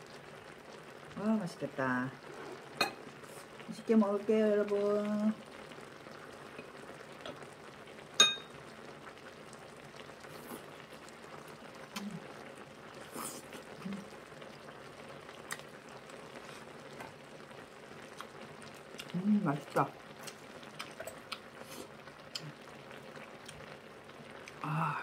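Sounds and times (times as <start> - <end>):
food simmering bubbling hiss: 0.0 - 25.0
soft eating sounds: 10.0 - 10.9, 11.8 - 14.4, 15.3 - 17.2, 18.0 - 25.0.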